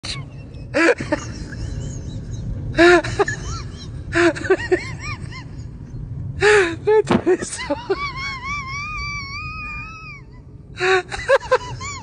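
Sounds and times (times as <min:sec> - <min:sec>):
low steady hum: 0:00.0 - 0:12.0
high-pitched voice crying: 0:07.4 - 0:10.4.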